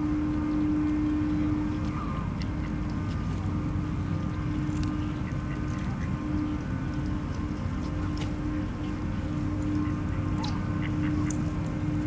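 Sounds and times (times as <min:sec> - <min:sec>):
low hum and rumble: 0:00.0 - 0:12.0
ducks quacking: 0:05.1 - 0:06.3, 0:09.6 - 0:11.6.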